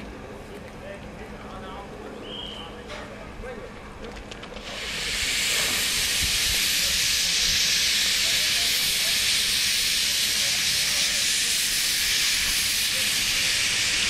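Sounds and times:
steam locomotive hissing steam: 4.6s - 14.0s.

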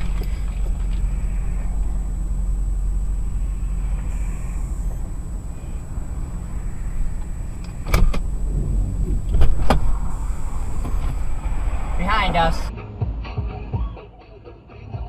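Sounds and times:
car rumble in traffic: 0.0s - 14.0s
sharp clicks and knocks: 7.2s - 10.0s.

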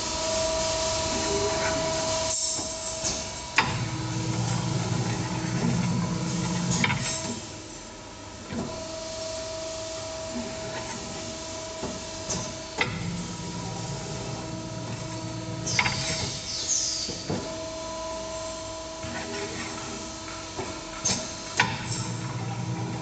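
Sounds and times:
machine hum: 0.0s - 7.4s, 8.6s - 23.0s
low machine drive noise: 0.0s - 8.9s, 9.7s - 23.0s
pneumatic air hiss: 0.1s - 3.9s, 15.6s - 17.5s.

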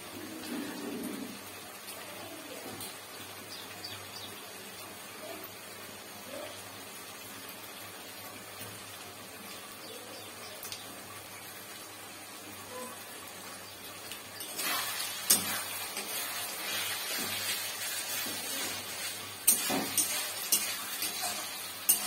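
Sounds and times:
vegetables sizzling in a pan: 0.0s - 22.0s
metal spatula scraping pan: 14.4s - 22.0s
spatula clanking on pan: 14.4s - 22.0s.

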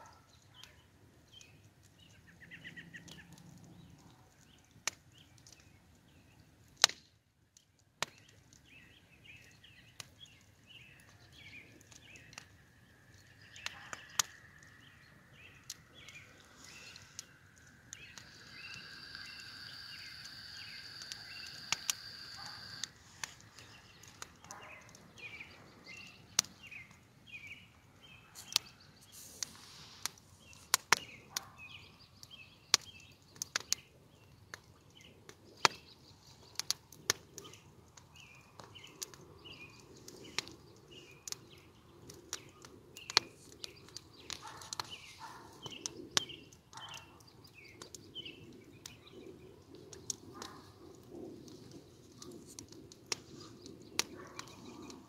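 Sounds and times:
small birds chirping: 0.0s - 6.8s, 7.6s - 55.0s
sharp cracks and snaps: 0.0s - 55.0s
steady high whine: 18.2s - 23.0s.

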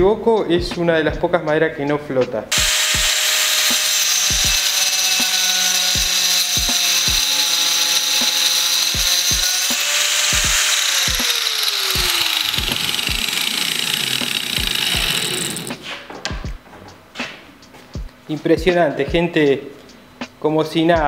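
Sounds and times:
angle grinder cutting wood: 2.6s - 16.0s.

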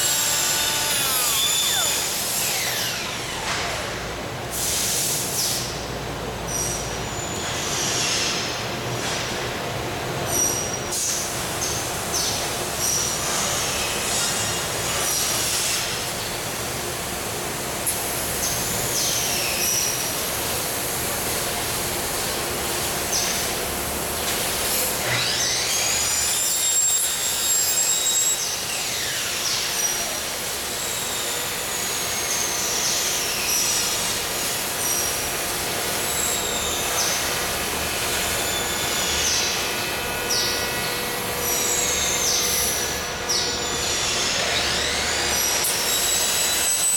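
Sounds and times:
high-pitched squeals and screeches: 0.0s - 3.9s, 25.0s - 35.3s, 35.9s - 46.9s
workshop background noise: 0.0s - 46.9s.

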